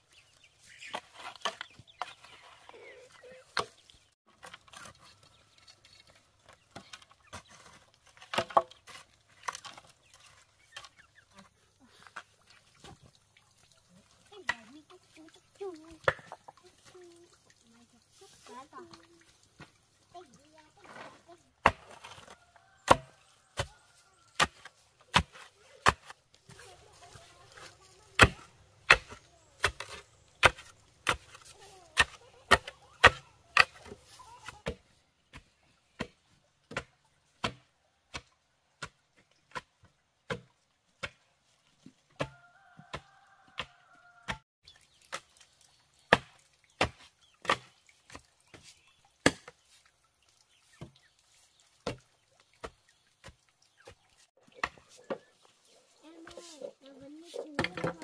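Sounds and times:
chopping into bamboo: 0:21.6 - 0:23.7, 0:24.4 - 0:26.2, 0:28.2 - 0:39.7, 0:42.2 - 0:44.4, 0:46.1 - 0:47.7.

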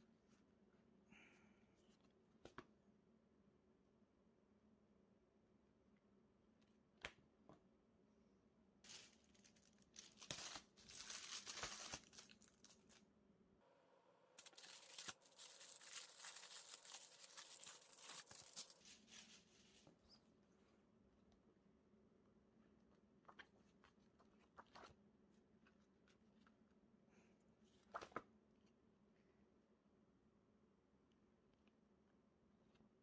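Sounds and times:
plastic sleeve crinkling: 0:08.8 - 0:13.0, 0:14.4 - 0:20.1.

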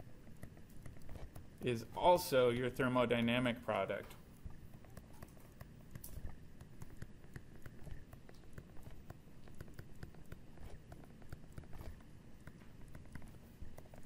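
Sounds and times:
stylus tapping and scratching glass: 0:04.4 - 0:14.0.

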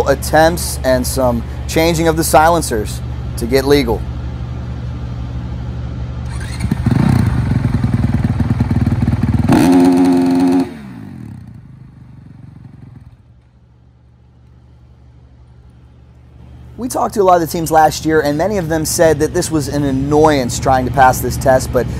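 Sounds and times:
motorcycle engine revving: 0:06.1 - 0:13.3.

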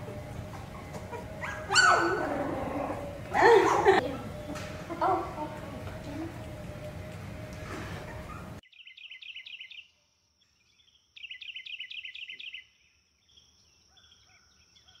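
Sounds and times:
noisy background: 0:00.0 - 0:08.6
bird chirping: 0:08.0 - 0:15.0.

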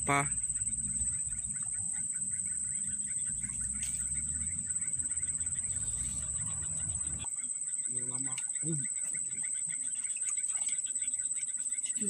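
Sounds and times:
low rumble: 0:00.0 - 0:07.3
insects droning: 0:00.0 - 0:12.0.

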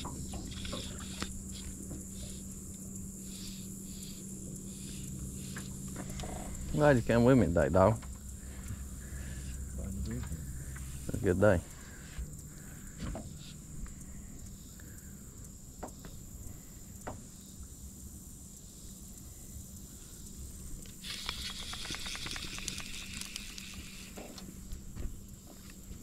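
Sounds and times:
fly reel clicking: 0:00.0 - 0:06.9, 0:20.8 - 0:24.5.

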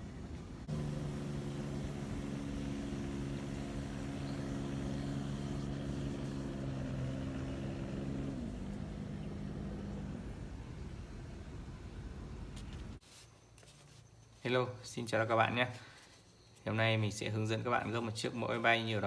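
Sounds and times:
engine droning: 0:00.0 - 0:13.0.

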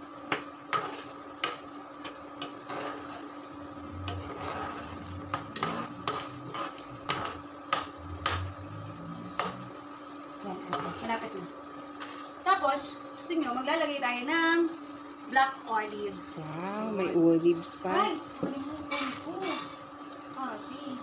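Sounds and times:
faint steady hum: 0:00.0 - 0:21.0
spoon scraping pan: 0:00.7 - 0:09.8, 0:10.6 - 0:11.3.

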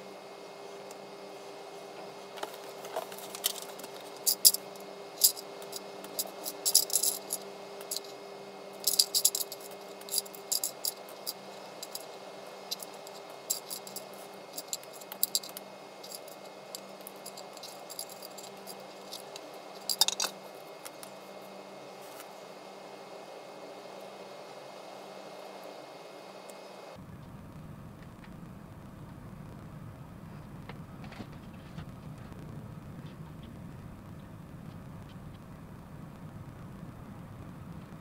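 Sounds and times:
plastic parts clicking and rattling: 0:02.5 - 0:04.6, 0:05.2 - 0:08.1, 0:08.9 - 0:12.1, 0:12.7 - 0:21.0.

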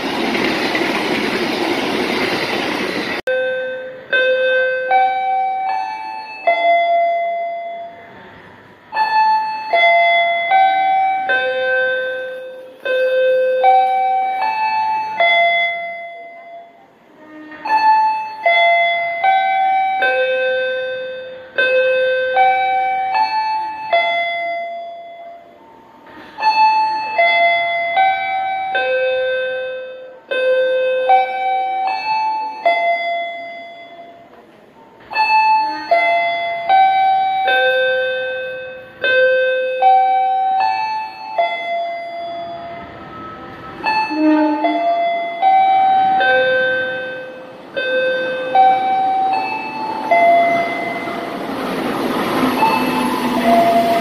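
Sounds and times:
station chime melody: 0:35.1 - 0:51.4.

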